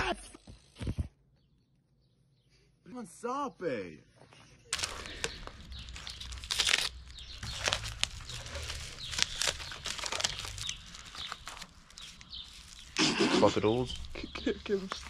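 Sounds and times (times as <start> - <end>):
plastic wrapping tearing and crinkling: 4.7 - 15.0.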